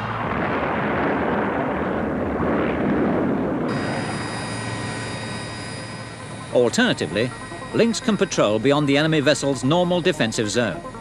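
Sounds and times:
explosion rumbling roar: 0.0 - 5.5
helicopter cabin noise: 3.6 - 11.0.

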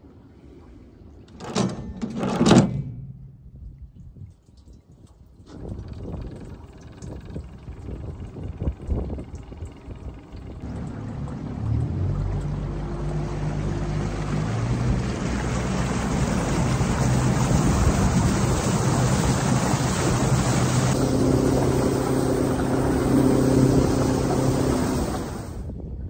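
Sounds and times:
motorboat engine drone: 5.5 - 25.7
rushing water and wind: 5.5 - 25.8
higher engine tone: 6.4 - 25.7.

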